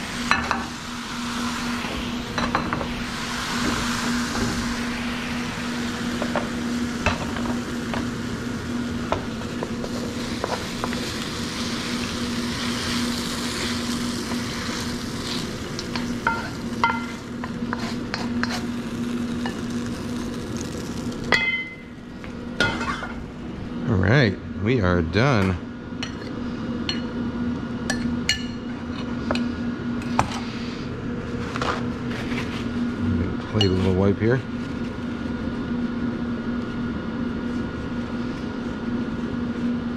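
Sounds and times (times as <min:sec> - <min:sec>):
food sizzling in a wok: 0:00.0 - 0:23.3
steady low hum: 0:00.0 - 0:39.9.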